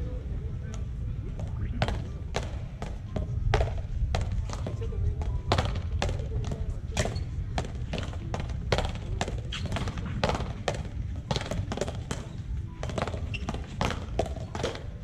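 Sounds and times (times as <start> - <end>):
steady low rumble: 0.0 - 9.3.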